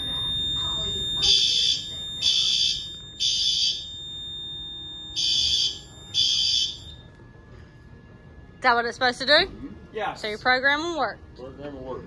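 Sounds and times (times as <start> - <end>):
fire alarm horn blasts: 0.0 - 7.1.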